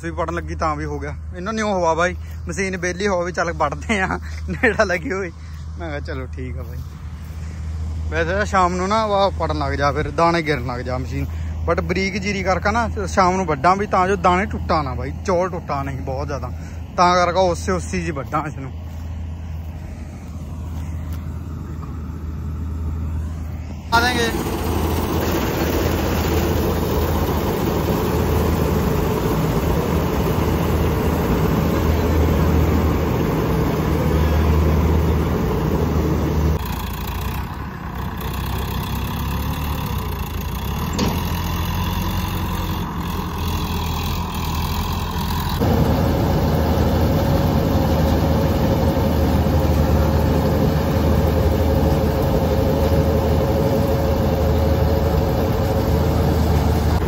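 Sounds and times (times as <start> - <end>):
combine harvester running: 0.0 - 57.0
machinery rattle: 23.9 - 57.0.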